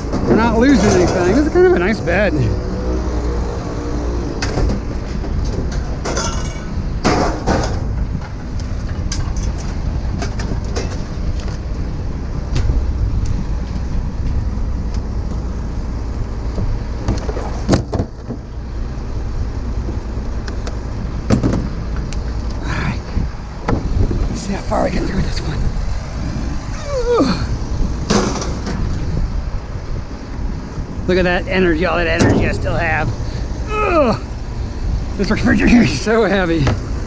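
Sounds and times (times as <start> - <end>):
vehicle engine rumbling: 0.0 - 37.0
knocks and clanks: 4.4 - 11.1, 21.3 - 21.8, 28.1 - 29.0.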